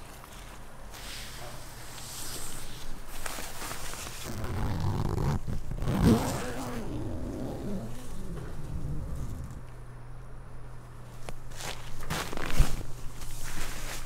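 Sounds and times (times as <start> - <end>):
tent fabric rustling: 0.0 - 9.6, 11.1 - 14.0
tent zipper opening: 3.8 - 9.6, 12.0 - 12.9.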